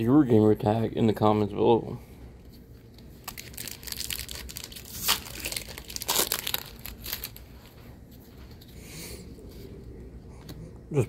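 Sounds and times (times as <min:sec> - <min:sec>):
foil wrapper crackling: 0:03.2 - 0:07.8.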